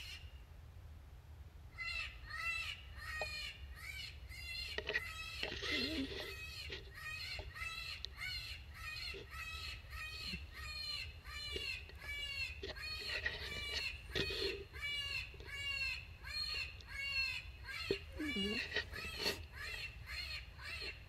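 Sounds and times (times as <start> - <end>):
electronic raspy distress cries: 12.6 - 21.0.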